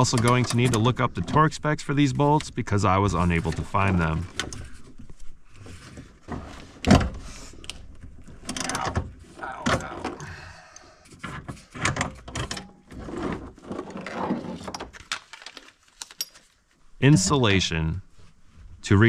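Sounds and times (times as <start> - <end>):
clicks and metallic rattles: 0.0 - 1.5, 7.7 - 9.9, 11.2 - 12.9.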